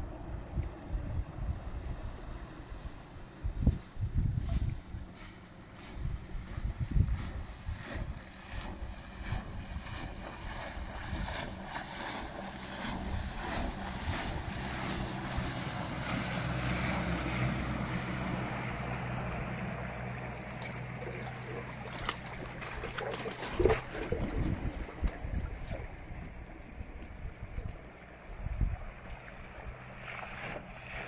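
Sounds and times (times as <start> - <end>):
wind on microphone: 0.0 - 5.2, 5.8 - 18.4, 21.5 - 31.0
boat wake rushing: 0.0 - 31.0
electric outboard motor hum: 0.0 - 31.0
wake slapping against rocks: 20.4 - 26.6.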